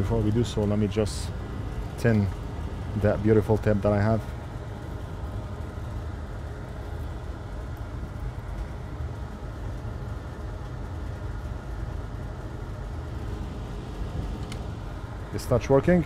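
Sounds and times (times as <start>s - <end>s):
low background hum and rumble: 0.0s - 16.0s.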